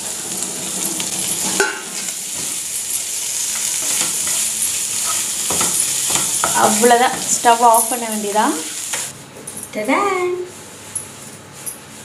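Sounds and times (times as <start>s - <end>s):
chicken sizzling in a frying pan: 0.0s - 9.1s
wooden spatula scraping a pan: 0.2s - 9.0s.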